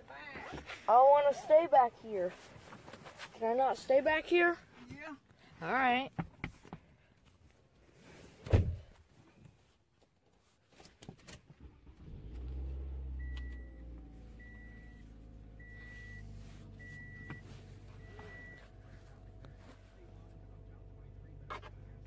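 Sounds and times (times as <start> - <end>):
car engine starting and idling: 11.4 - 22.0
dashboard warning chime: 13.1 - 19.6.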